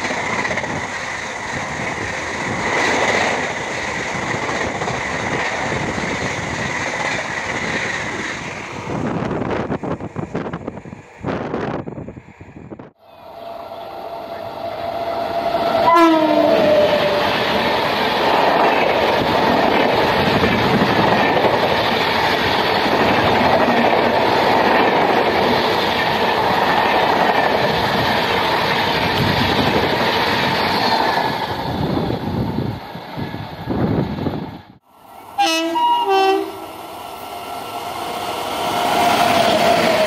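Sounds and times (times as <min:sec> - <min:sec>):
train wheels on track: 0:00.0 - 0:40.0
train horn: 0:13.4 - 0:17.3, 0:35.4 - 0:36.7.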